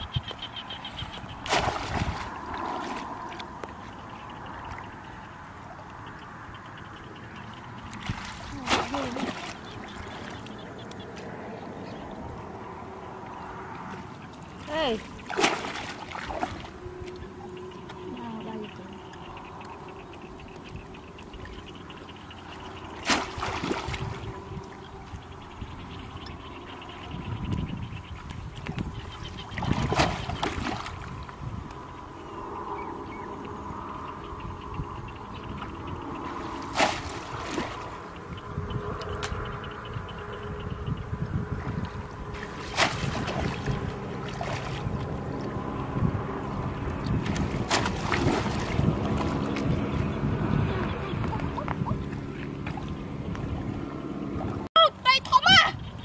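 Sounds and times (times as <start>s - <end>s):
shallow water splashing: 0.5s - 5.0s, 7.8s - 11.5s, 13.5s - 26.9s, 28.1s - 31.4s, 36.1s - 38.4s, 41.6s - 50.3s.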